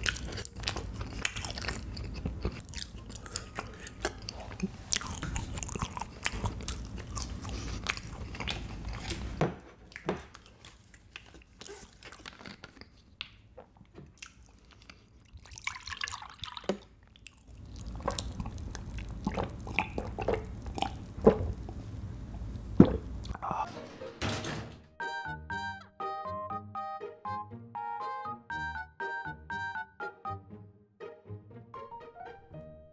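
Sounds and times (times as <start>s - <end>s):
chewing and mouth sounds: 0.0s - 23.5s.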